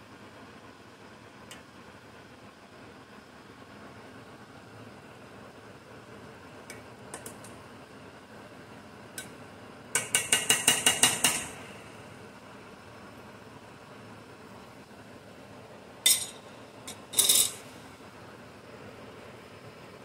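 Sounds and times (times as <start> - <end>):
metal spoon tapping saucepan: 10.0 - 11.6, 16.1 - 17.6.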